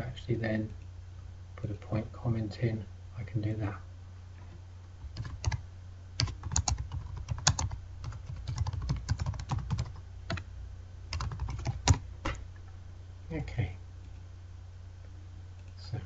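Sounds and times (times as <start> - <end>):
faint low hum: 0.0 - 16.0
computer keyboard typing: 5.1 - 5.6, 6.2 - 10.4, 11.1 - 12.0.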